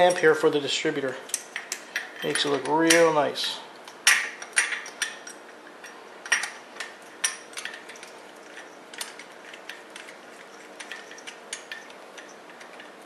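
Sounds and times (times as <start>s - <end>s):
metallic clinks of clamp and bolt: 4.0s - 13.0s.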